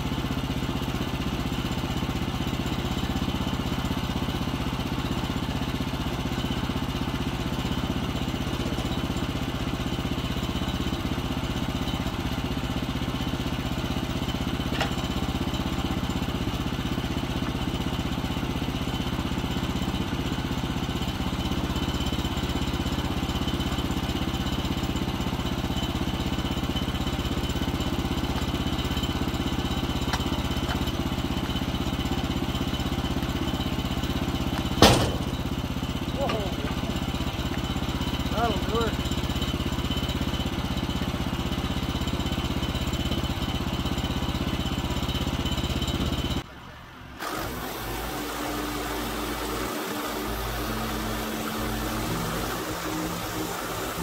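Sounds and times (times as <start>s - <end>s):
gas engine idling: 0.0s - 46.8s
sharp knocks: 34.8s - 35.6s.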